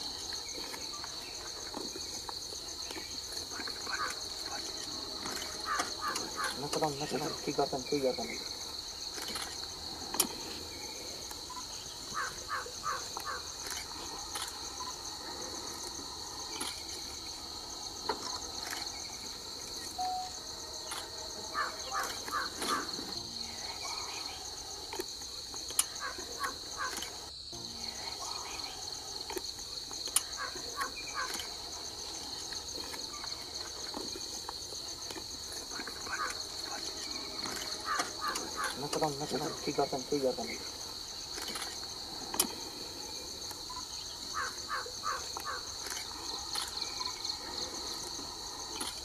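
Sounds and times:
high-pitched insect chorus: 0.0 - 49.0
animal repeated calls: 5.6 - 6.7, 21.5 - 23.1, 37.8 - 39.0.

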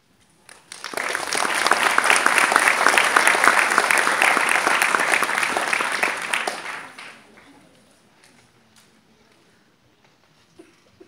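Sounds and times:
audience applauding: 0.5 - 7.5.

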